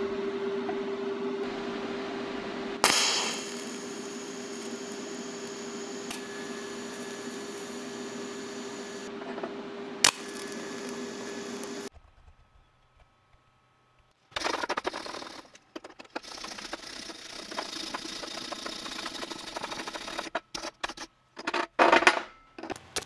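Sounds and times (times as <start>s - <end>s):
constant hum: 0.0s - 23.0s
sharp crack: 2.8s - 8.2s, 10.0s - 11.0s
welding arc buzzing hiss: 2.8s - 9.2s, 9.8s - 11.9s, 16.2s - 20.3s.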